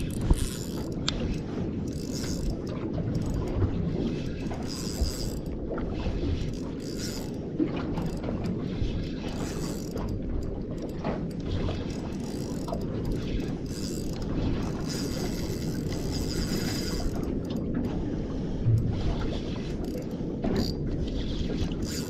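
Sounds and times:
fishing reel gears ticking: 0:00.0 - 0:03.6, 0:04.4 - 0:05.5, 0:06.4 - 0:07.4, 0:09.3 - 0:17.5, 0:19.8 - 0:20.8, 0:21.8 - 0:22.0.

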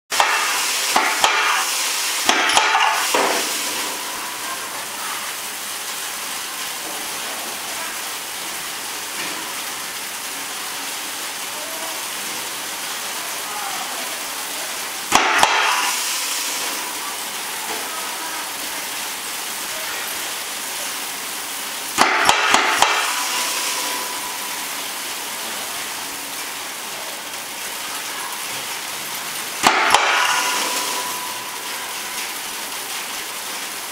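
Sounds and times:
plastic granules pouring: 0:20.5 - 0:27.6.

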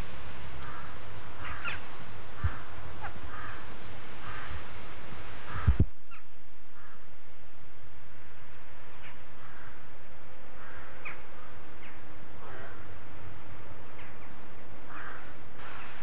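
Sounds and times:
steady hiss: 0:00.0 - 0:16.0
crows cawing: 0:00.6 - 0:04.8, 0:05.4 - 0:07.1, 0:09.0 - 0:13.3, 0:14.8 - 0:16.0.

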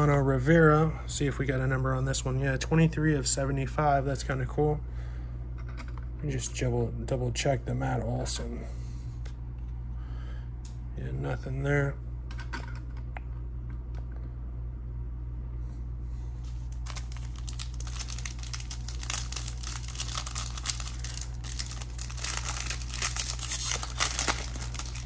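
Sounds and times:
steady low hum: 0:00.0 - 0:25.0
foil pack crinkling and tearing: 0:16.5 - 0:25.0.

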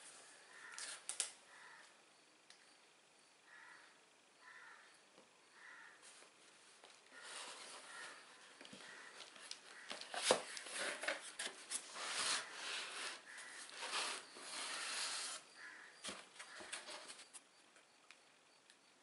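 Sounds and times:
cardboard scraping against cardboard: 0:07.2 - 0:08.2, 0:10.0 - 0:17.3.

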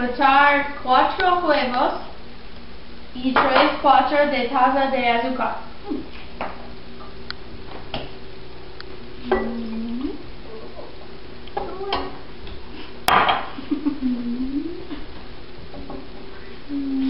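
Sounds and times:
dishes clinking and knocking: 0:09.3 - 0:09.7, 0:13.1 - 0:13.5.

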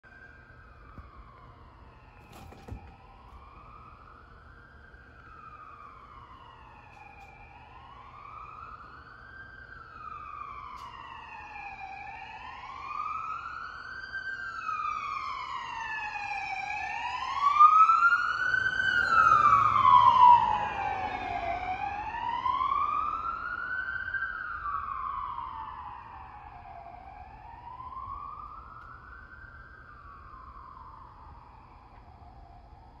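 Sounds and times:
police siren wailing: 0:00.0 - 0:33.0
passing vehicle rumble: 0:18.5 - 0:23.5.

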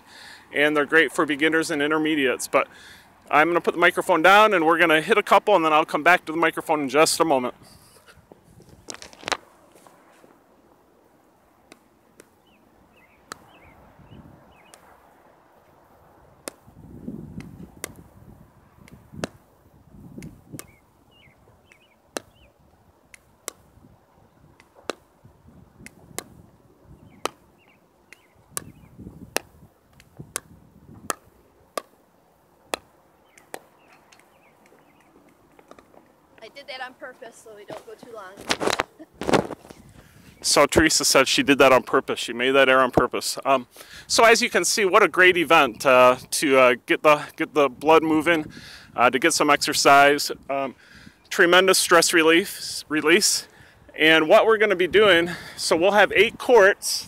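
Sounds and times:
ball bouncing on asphalt: 0:08.3 - 0:09.5, 0:11.6 - 0:13.7, 0:14.5 - 0:15.0, 0:16.4 - 0:18.2, 0:18.8 - 0:36.6, 0:37.6 - 0:39.8
paddles hitting plastic ball: 0:08.3 - 0:09.5, 0:11.6 - 0:12.5, 0:13.2 - 0:13.6, 0:14.6 - 0:14.9, 0:16.4 - 0:16.7, 0:17.3 - 0:18.1, 0:18.8 - 0:19.5, 0:20.1 - 0:20.8, 0:21.6 - 0:23.8, 0:24.4 - 0:25.2, 0:25.8 - 0:36.3.

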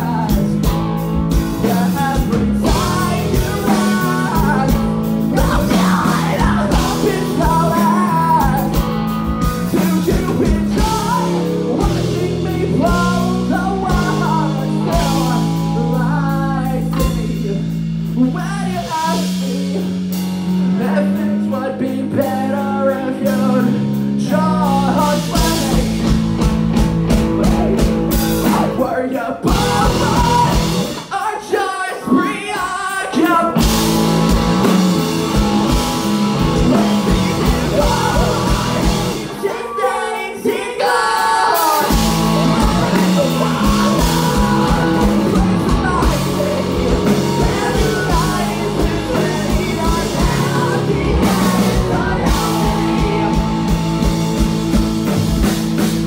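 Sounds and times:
bass guitar: 0:00.0 - 0:31.3, 0:32.0 - 0:56.0
drum kit: 0:00.0 - 0:56.0
electric guitars: 0:00.0 - 0:56.0
person singing: 0:01.5 - 0:08.9, 0:09.6 - 0:20.1, 0:27.2 - 0:33.9, 0:34.7 - 0:54.8.

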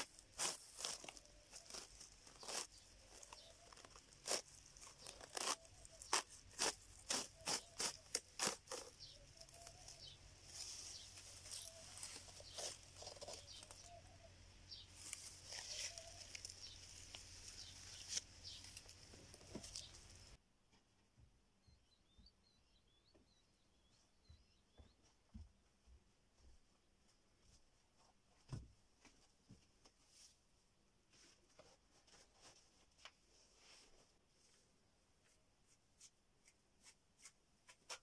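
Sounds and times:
fibre rustling: 0:00.0 - 0:14.1, 0:14.8 - 0:20.4
palm fibre tearing: 0:00.0 - 0:14.2, 0:14.9 - 0:20.4.

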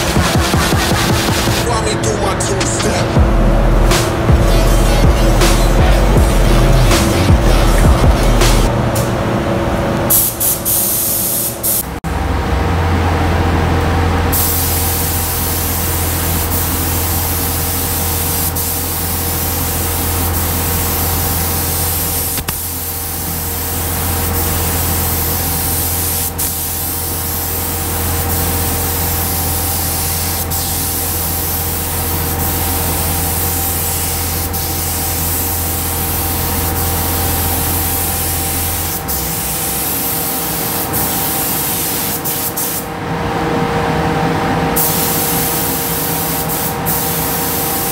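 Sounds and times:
low hum: 0:00.0 - 0:10.1
paint spray gun hissing: 0:10.1 - 0:11.8, 0:14.4 - 0:42.9, 0:44.8 - 0:47.9.

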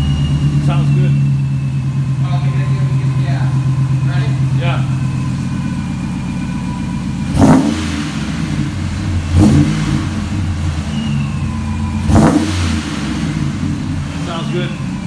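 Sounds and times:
engine idling and revving: 0:00.0 - 0:15.0.

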